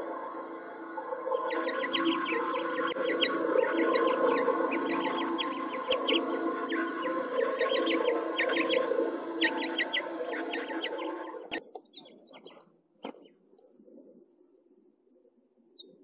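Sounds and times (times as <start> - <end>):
finches chirping: 1.4 - 12.6.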